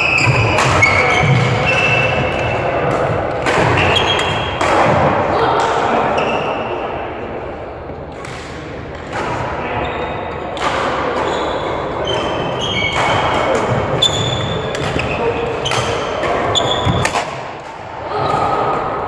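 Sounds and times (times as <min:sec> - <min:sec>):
trainers squeaking on court floor: 0:00.0 - 0:04.6, 0:06.1 - 0:06.8, 0:09.6 - 0:17.2
murmur of voices: 0:00.0 - 0:19.0
rackets striking shuttlecock: 0:00.1 - 0:05.8, 0:10.2 - 0:18.8.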